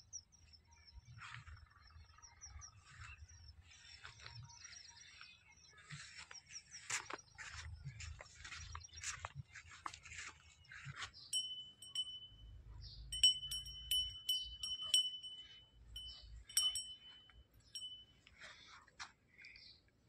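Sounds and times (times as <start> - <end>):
small metal bell ringing: 11.3 - 18.4.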